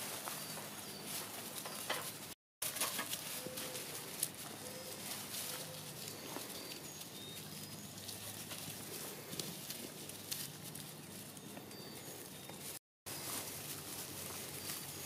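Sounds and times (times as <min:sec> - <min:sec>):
rustling of leaves: 0:00.0 - 0:15.0
puppies chirping: 0:03.3 - 0:15.0.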